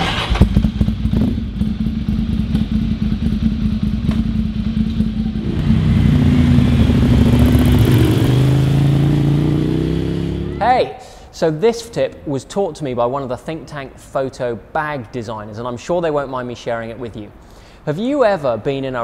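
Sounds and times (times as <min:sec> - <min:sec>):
motorcycle engine accelerating: 0:00.0 - 0:10.6.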